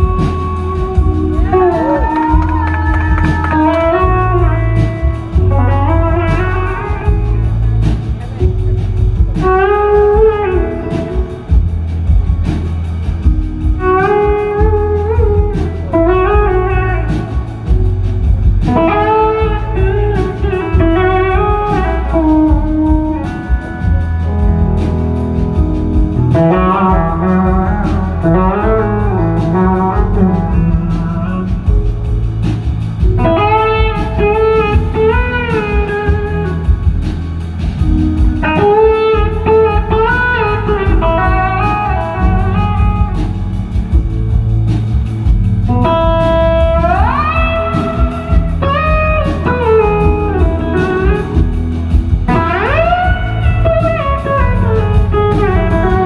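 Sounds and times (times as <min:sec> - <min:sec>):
electric slide guitar solo: 0:00.0 - 0:07.6, 0:13.8 - 0:17.7, 0:26.2 - 0:31.7, 0:33.2 - 0:36.9, 0:38.4 - 0:43.4, 0:45.7 - 0:51.5, 0:52.3 - 0:56.0
blues-rock band playing: 0:00.0 - 0:56.0.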